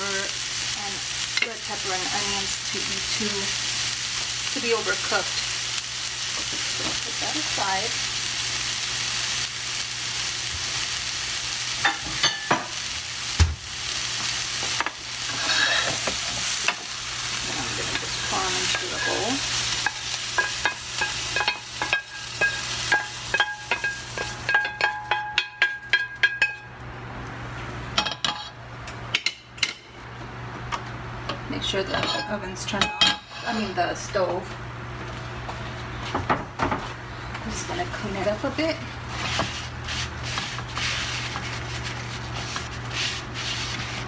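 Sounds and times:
vegetables sizzling in a pan: 0.0s - 25.9s, 31.5s - 34.4s, 37.4s - 44.0s
spoon tapping pan and bowl: 19.8s - 26.7s.

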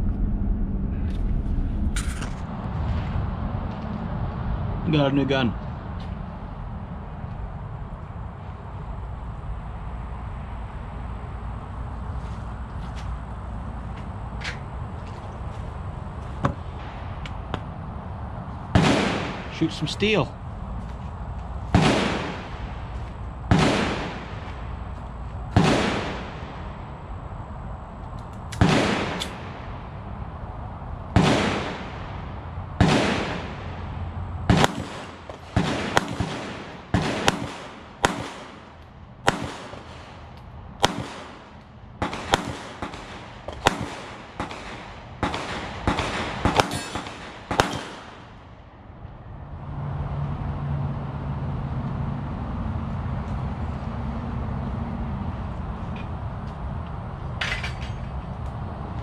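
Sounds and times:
pistol shots with echo: 18.8s - 20.0s, 21.7s - 22.7s, 23.5s - 24.5s, 25.5s - 26.7s, 28.6s - 29.7s, 31.2s - 32.2s, 32.8s - 33.8s, 34.5s - 40.2s, 40.8s - 48.4s.

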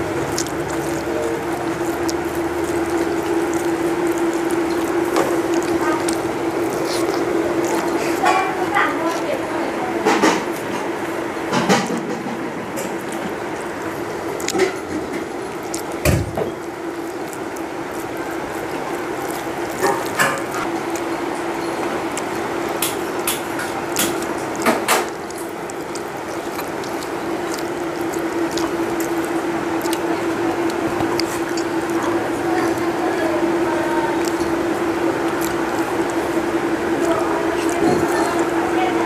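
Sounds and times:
mouth sounds: 0.0s - 10.8s, 11.7s - 39.0s
fingers mixing rice: 0.0s - 39.0s
steady hum: 0.0s - 39.0s.

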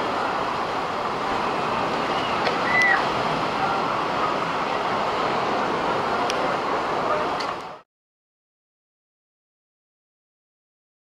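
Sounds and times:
ocean surf: 0.0s - 7.8s
wind rushing: 0.0s - 7.8s.

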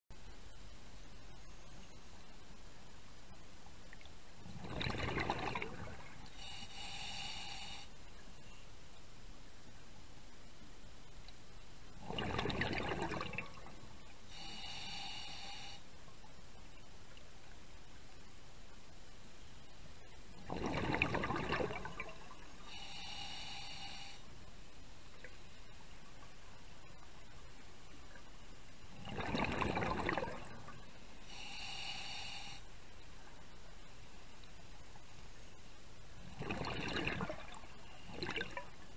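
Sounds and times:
exhaled bubbles underwater: 4.4s - 6.2s, 12.0s - 13.8s, 20.4s - 22.4s, 28.9s - 30.8s, 36.2s - 38.9s
regulator inhale hiss: 6.1s - 8.6s, 14.1s - 16.0s, 22.4s - 24.8s, 30.5s - 33.0s.

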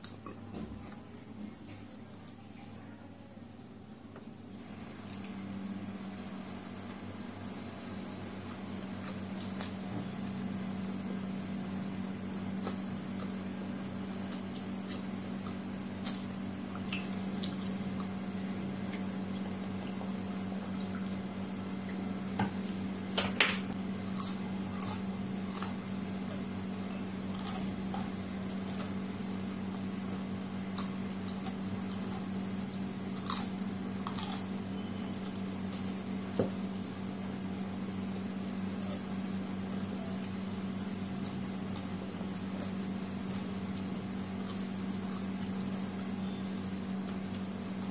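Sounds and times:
steady background hum: 0.0s - 47.9s.

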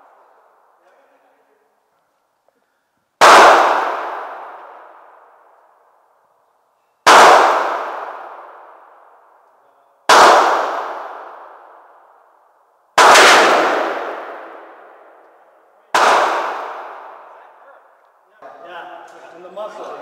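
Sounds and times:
revolver shots echoing indoors: 2.7s - 18.1s.

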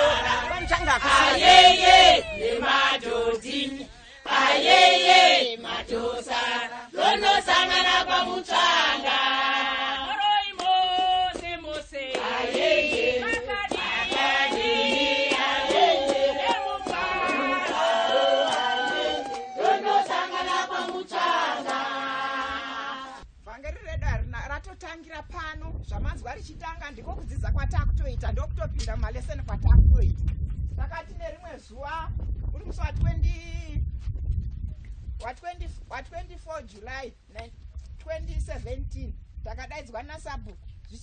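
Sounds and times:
women singing in chorus: 0.0s - 10.2s, 11.0s - 23.2s.

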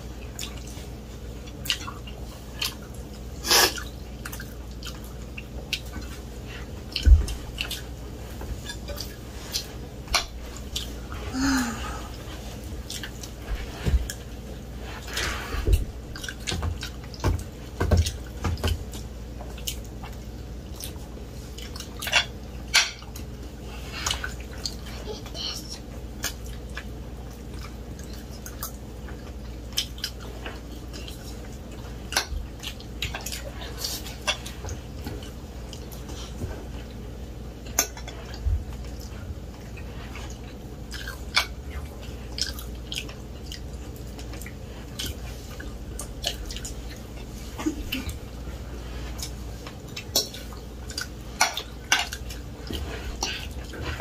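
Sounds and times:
chewing smacks: 0.0s - 8.0s, 8.6s - 11.1s, 12.5s - 15.4s, 16.1s - 25.0s, 25.7s - 37.0s, 37.6s - 54.0s.

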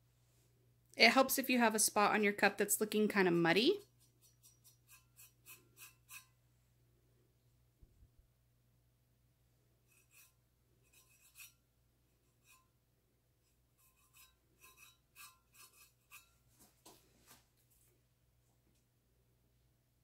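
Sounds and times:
fingertip rubbing on metal: 3.8s - 6.4s, 9.8s - 12.8s, 13.4s - 16.4s.

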